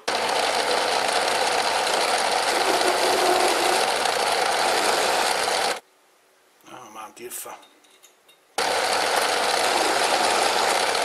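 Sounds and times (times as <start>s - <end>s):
metal lathe running: 0.0s - 5.8s, 8.6s - 11.0s
tool cutting metal: 1.5s - 5.8s, 8.6s - 11.0s.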